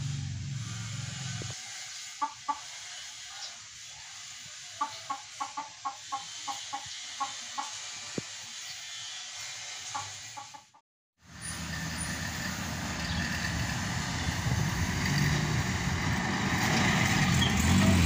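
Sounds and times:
vehicle engine hum: 0:00.0 - 0:03.9, 0:11.2 - 0:18.0
outdoor hiss: 0:00.0 - 0:10.5
chicken clucking: 0:02.2 - 0:03.5, 0:04.6 - 0:07.8, 0:09.9 - 0:10.8.

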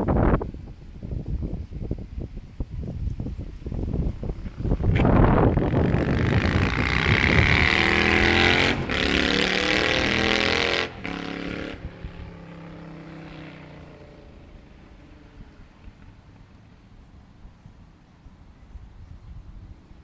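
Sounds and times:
motorcycle engine accelerating: 0:03.4 - 0:16.2.

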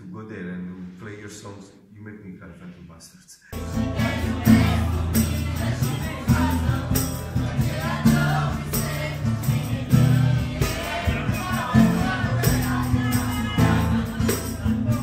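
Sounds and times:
bass: 0:03.5 - 0:15.0
acoustic guitar: 0:03.6 - 0:15.0
steady percussive beat: 0:03.6 - 0:15.0
woman singing: 0:03.6 - 0:15.0.

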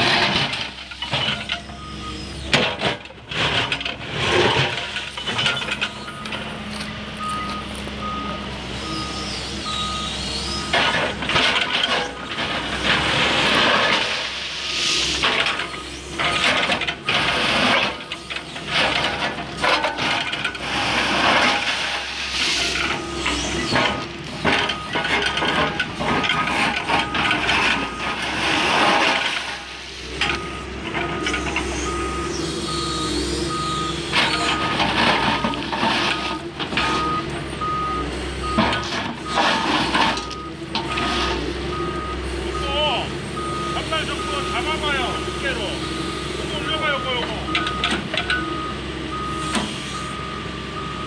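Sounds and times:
excavator engine and hydraulics: 0:00.0 - 0:51.0
warning alarm beeping: 0:05.2 - 0:11.0, 0:30.2 - 0:51.0.

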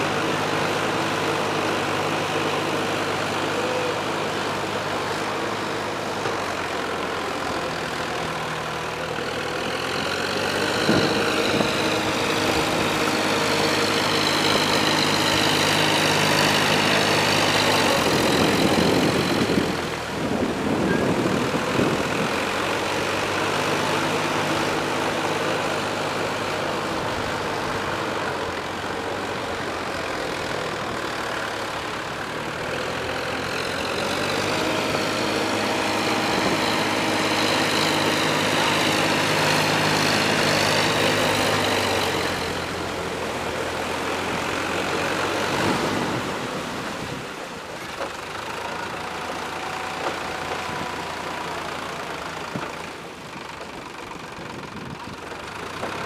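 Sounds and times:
tractor diesel engine under load: 0:00.0 - 0:56.0.

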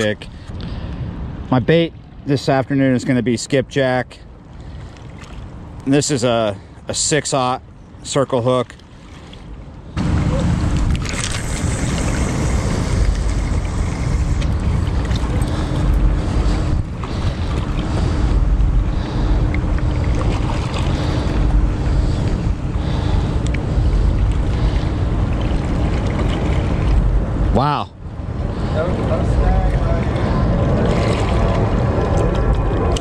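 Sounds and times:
faint steady hum: 0:00.0 - 0:33.0
wind buffeting microphone: 0:09.4 - 0:33.0.

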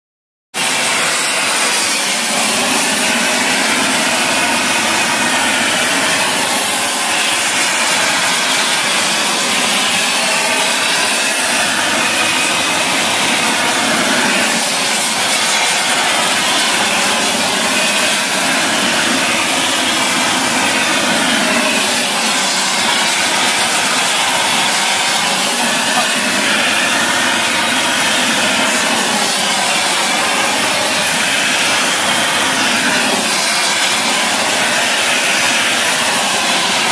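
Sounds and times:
welding arc hissing: 0:00.6 - 0:36.9.

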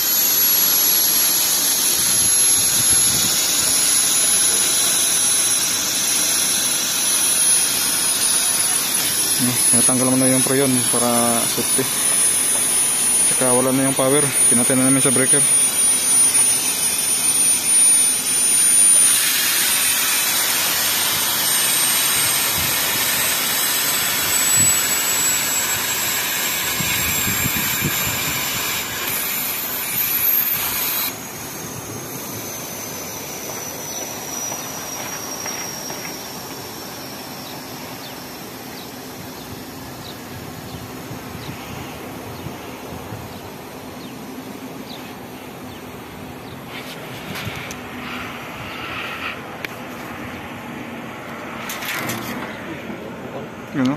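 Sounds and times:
refrigerant gas hissing: 0:00.0 - 0:38.7.

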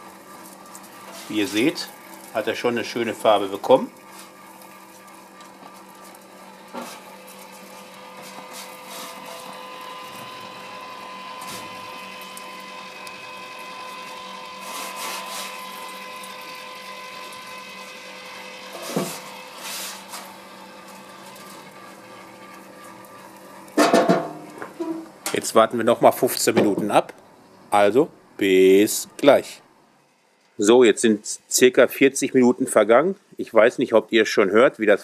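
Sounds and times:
rotisserie motor humming: 0:00.0 - 0:25.4.

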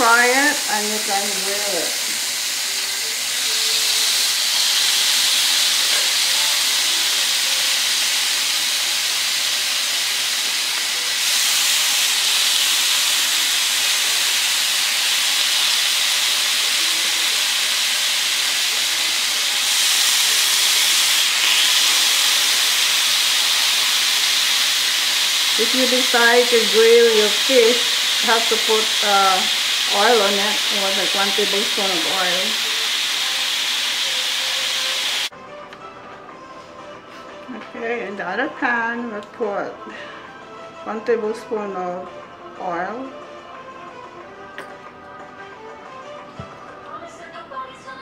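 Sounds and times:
fish sizzling on a grill pan: 0:00.0 - 0:35.3.

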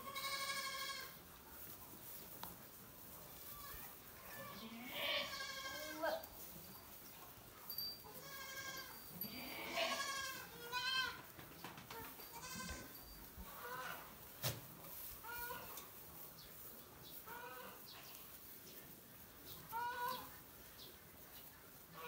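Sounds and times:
goats bleating: 0:00.0 - 0:01.2, 0:04.3 - 0:06.2, 0:08.2 - 0:11.2, 0:12.3 - 0:14.1.

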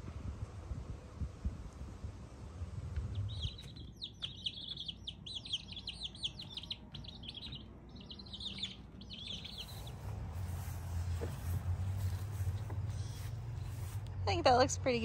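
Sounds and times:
chicks peeping: 0:03.0 - 0:14.2.

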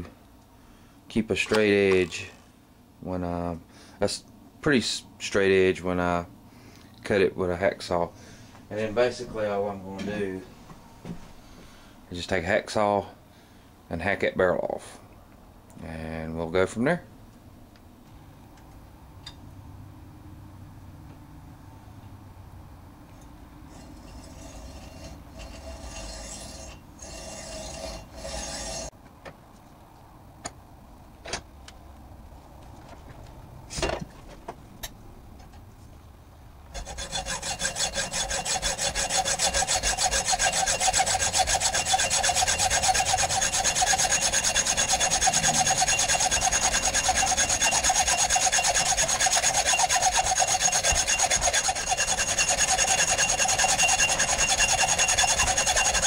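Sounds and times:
hacksaw cutting steel: 0:23.7 - 0:28.9, 0:36.7 - 0:56.0.

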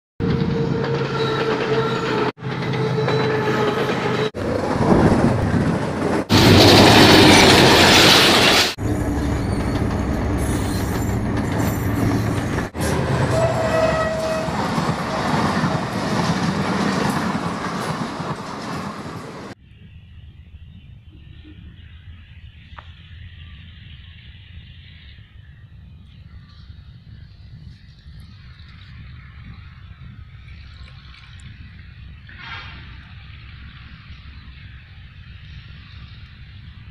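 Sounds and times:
train horn: 0:00.2 - 0:04.4, 0:12.8 - 0:14.8
diesel locomotives running: 0:00.2 - 0:36.9
rail noise: 0:00.2 - 0:36.9.

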